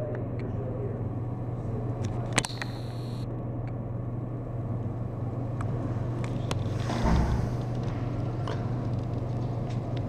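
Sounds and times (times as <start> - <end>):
faint high whine: 0.0 - 9.5
sharp click: 2.3 - 3.2.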